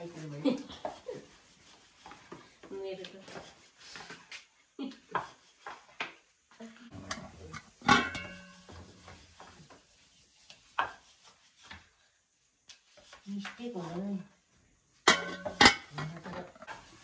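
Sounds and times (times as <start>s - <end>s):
metal dishes clinking: 7.0s - 8.7s, 15.0s - 16.3s.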